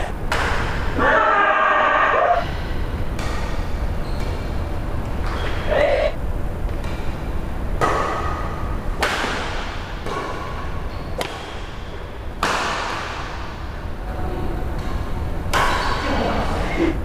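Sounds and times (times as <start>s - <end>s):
racket striking shuttlecock: 0.3s - 1.0s, 3.1s - 5.6s, 7.8s - 13.6s, 14.8s - 16.2s.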